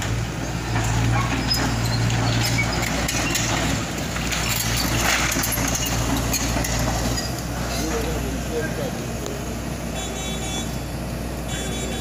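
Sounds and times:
excavator diesel engine running: 0:00.0 - 0:12.0
debris knocking and clattering: 0:00.7 - 0:07.4.

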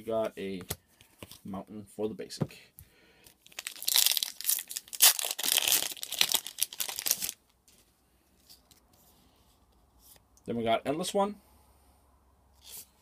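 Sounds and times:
foil wrapper tearing: 0:03.4 - 0:07.4.

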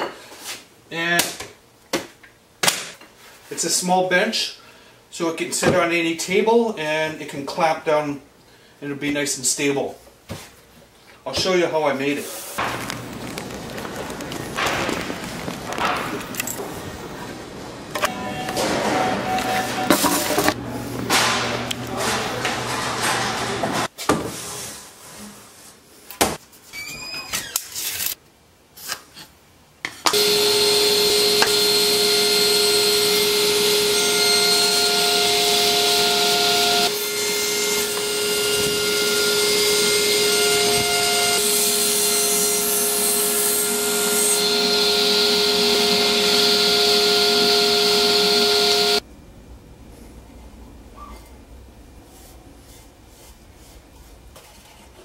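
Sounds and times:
table saw running: 0:30.1 - 0:49.0.

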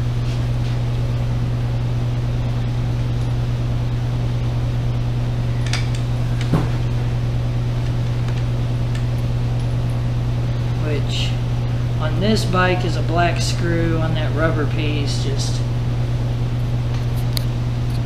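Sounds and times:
low electric hum: 0:00.0 - 0:18.0.

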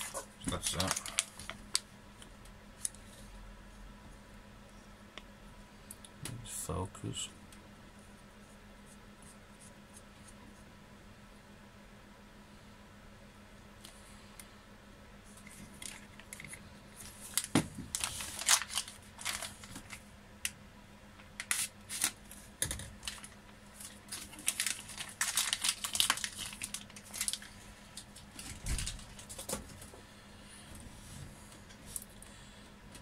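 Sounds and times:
plastic bag crinkling: 0:00.0 - 0:01.9, 0:15.4 - 0:20.0, 0:21.4 - 0:29.6.

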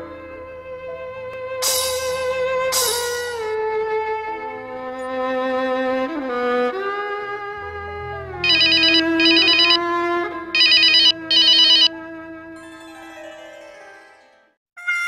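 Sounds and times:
string music: 0:00.0 - 0:15.0
telephone ringing: 0:08.4 - 0:09.8, 0:10.6 - 0:11.9.

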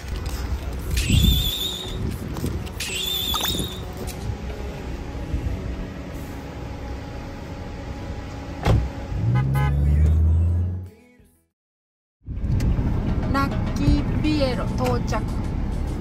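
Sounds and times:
van road and engine rumble: 0:00.0 - 0:11.5, 0:12.2 - 0:16.0
thump: 0:08.6 - 0:08.9.

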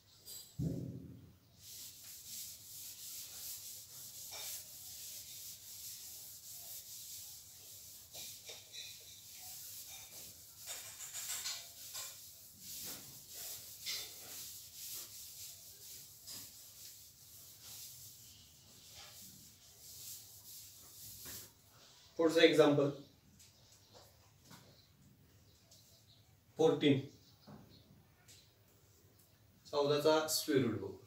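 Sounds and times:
thump: 0:00.6 - 0:01.3
eraser rubbing on whiteboard: 0:01.6 - 0:22.1.

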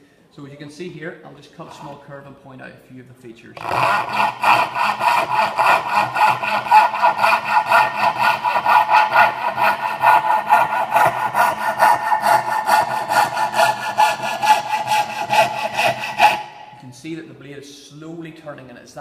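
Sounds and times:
saw cutting wood: 0:03.6 - 0:17.0.

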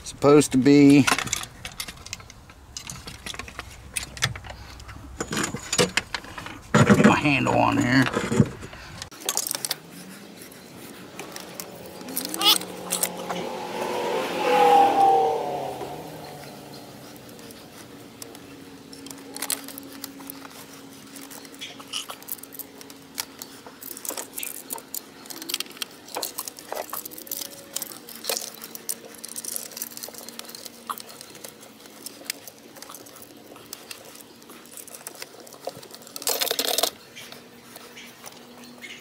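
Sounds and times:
plastic and metal parts clicking: 0:07.8 - 0:09.8, 0:18.2 - 0:38.5.

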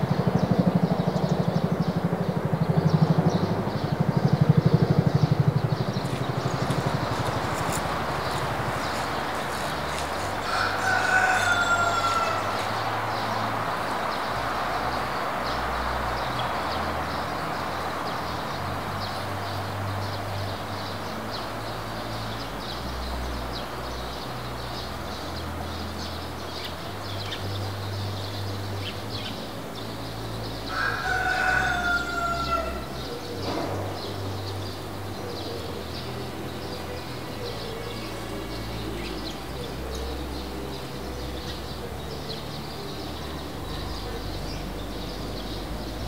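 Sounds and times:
distant rooster crowing: 0:06.1 - 0:13.9, 0:30.7 - 0:33.0.

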